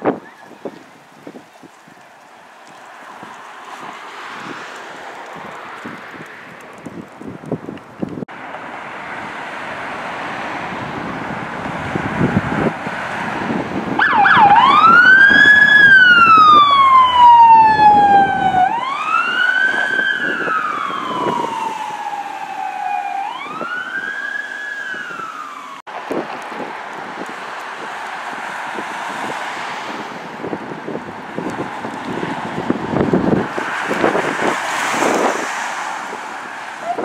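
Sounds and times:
traffic noise: 0.0s - 37.0s
electronic siren wailing: 14.0s - 25.8s.

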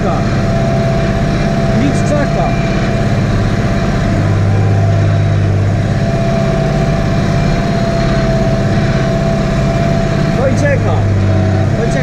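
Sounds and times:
thin steady whine: 0.0s - 12.0s
tractor diesel engine: 0.0s - 12.0s.

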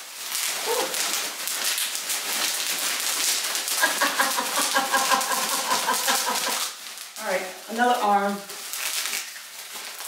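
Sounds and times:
plastic packaging crinkling: 0.0s - 10.0s
woman's voice: 7.2s - 8.4s.

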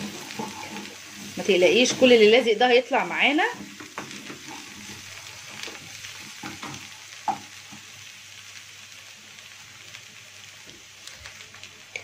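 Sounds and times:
wooden spatula scraping a pan: 0.0s - 7.5s
greens sizzling in a frying pan: 0.0s - 12.0s.

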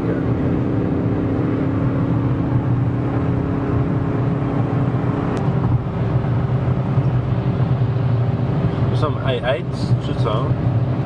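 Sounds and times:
car engine drone: 0.0s - 11.0s.

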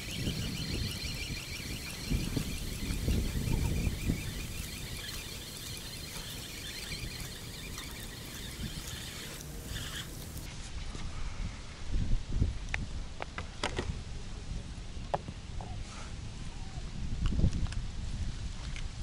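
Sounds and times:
faint high chirping: 0.0s - 10.5s
wind buffeting microphone: 0.0s - 13.2s, 16.2s - 19.0s.

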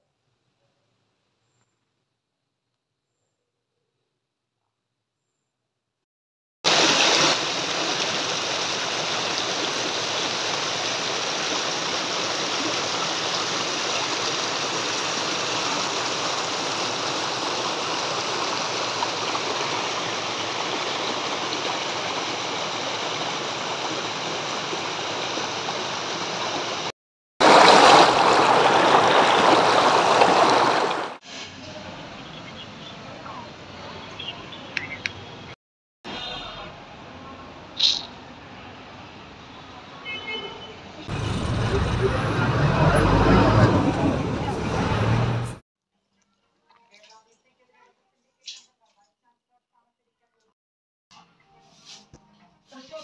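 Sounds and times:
stream water rushing over rocks: 6.7s - 31.2s.

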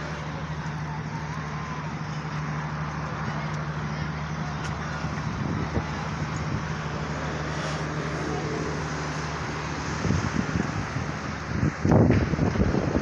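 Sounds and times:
low engine hum: 0.0s - 13.0s
road din: 0.0s - 13.0s
wind buffeting microphone: 3.6s - 13.0s.

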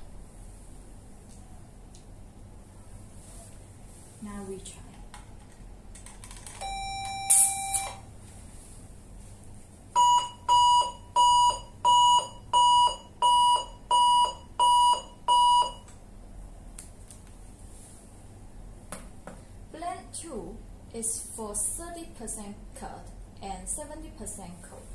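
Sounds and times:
alarm beeps: 6.6s - 8.0s, 10.0s - 15.8s
electrosurgical unit activation tone: 6.6s - 8.1s, 9.9s - 16.0s.

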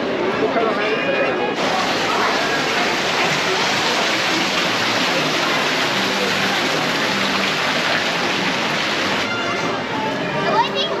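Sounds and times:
fountain water splashing into pool: 1.6s - 9.6s.

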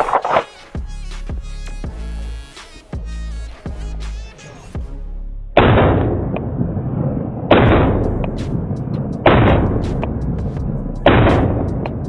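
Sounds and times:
electronic background music: 0.0s - 6.4s, 7.6s - 12.0s
pistol shots: 7.5s - 8.0s, 9.3s - 9.8s.

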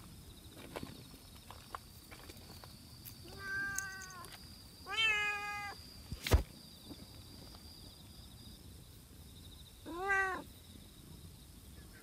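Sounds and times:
cat meowing: 3.3s - 4.2s, 4.9s - 5.8s, 9.9s - 10.4s.

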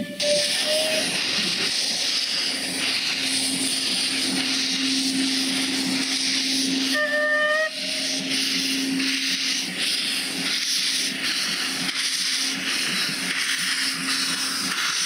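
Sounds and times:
steam whistle blast: 0.0s - 1.2s, 6.8s - 9.0s
steam hissing from locomotive: 0.0s - 15.0s.

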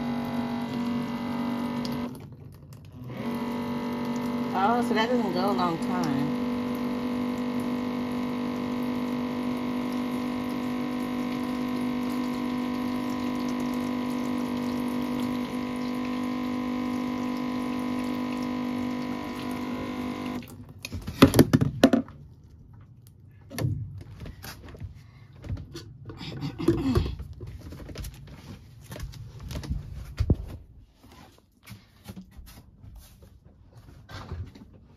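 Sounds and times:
water dispenser pump humming: 0.0s - 29.7s
knocks and clunks of handling jugs: 20.8s - 30.7s.

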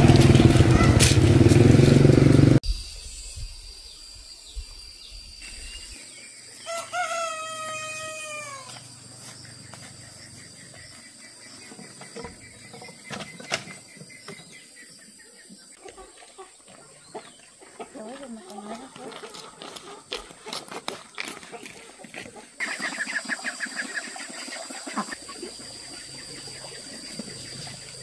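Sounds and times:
loud rumbling noise: 0.0s - 2.6s
rooster crowing: 6.6s - 8.8s.

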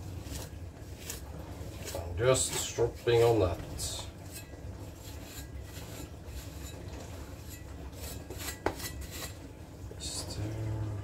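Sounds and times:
knife blade rubbing on cloth: 4.2s - 9.5s.

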